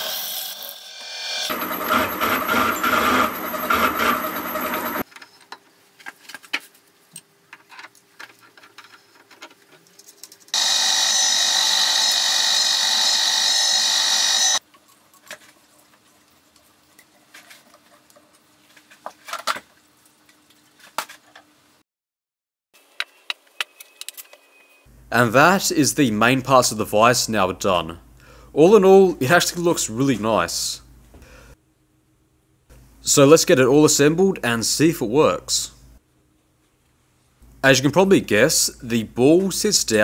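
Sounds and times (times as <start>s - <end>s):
cutter ringing squeal: 0.0s - 5.0s, 10.6s - 14.6s
milling cutter grinding steel: 0.0s - 5.0s, 10.6s - 14.6s.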